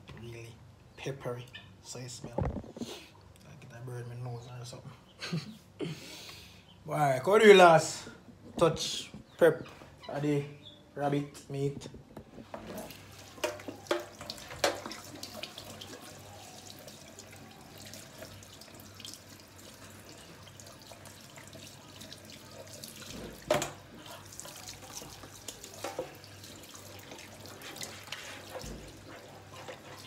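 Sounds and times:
tap water running into sink: 12.6 - 30.0.

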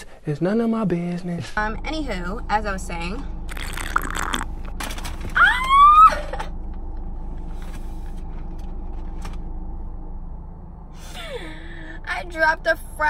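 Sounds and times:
idling car humming: 0.7 - 13.0
woman wailing: 5.4 - 6.6.

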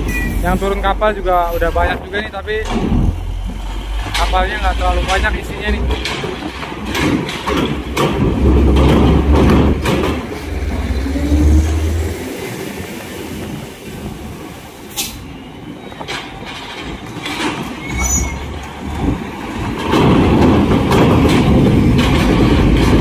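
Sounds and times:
trucks rumbling over steel ramp: 0.0 - 23.0
wheels knocking on ramp plates: 5.0 - 10.8, 19.0 - 23.0.

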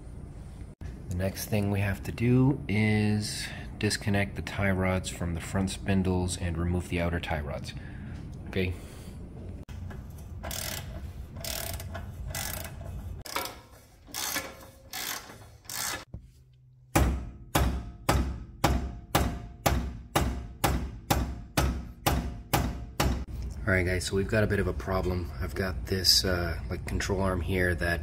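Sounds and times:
ratchet wrench rasping: 9.8 - 16.1.

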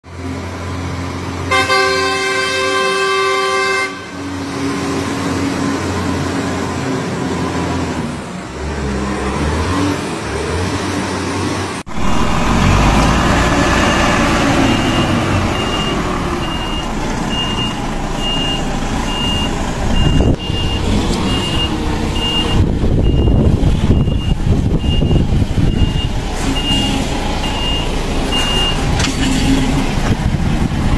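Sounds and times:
diesel engine running: 0.1 - 30.9
truck horn: 1.4 - 4.4, 25.8 - 27.2, 28.4 - 30.0
reversing beeper: 13.7 - 29.6.

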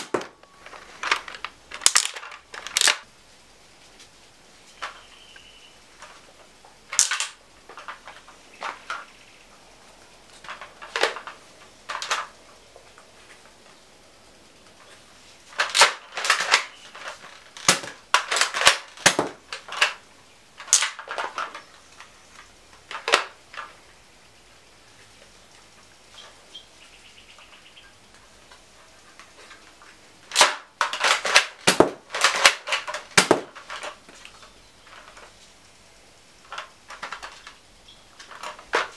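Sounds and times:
toy blaster clacks and pops: 1.0 - 3.0, 6.9 - 9.0, 15.6 - 20.0, 20.6 - 21.6, 22.9 - 23.7, 30.3 - 34.0.

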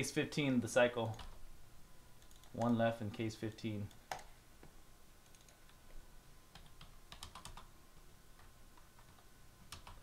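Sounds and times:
computer keyboard keystrokes: 1.1 - 1.4, 2.2 - 3.2, 5.3 - 5.7, 6.6 - 7.7, 9.0 - 10.0.

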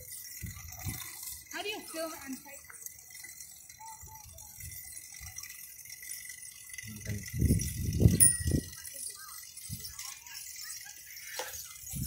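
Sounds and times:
wind buffeting microphone: 7.1 - 8.8.

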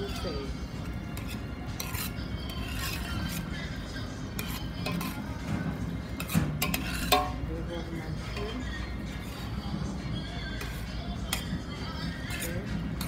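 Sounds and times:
metal spoon scraping a pot: 0.0 - 9.7, 10.4 - 13.0.

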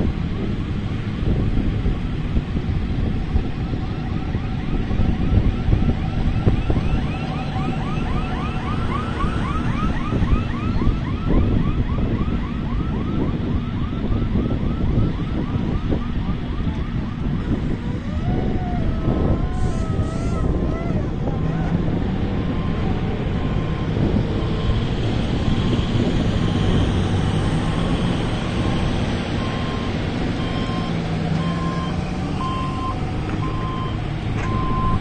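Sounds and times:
wind buffeting microphone: 0.0 - 35.0
distant diesel engines: 15.5 - 35.0.

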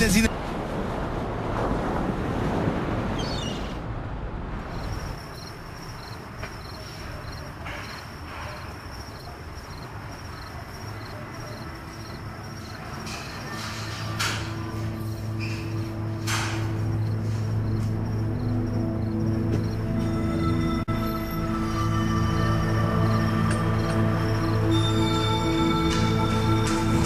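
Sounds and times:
sea surf: 0.0 - 4.6
wind: 0.0 - 27.0.

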